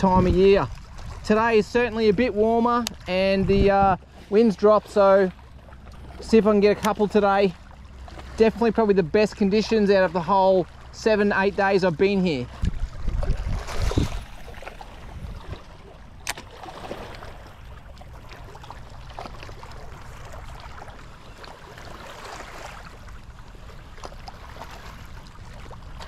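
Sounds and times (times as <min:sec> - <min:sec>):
small waves lapping on rocks: 0:00.0 - 0:26.0
sharp click: 0:16.2 - 0:16.4.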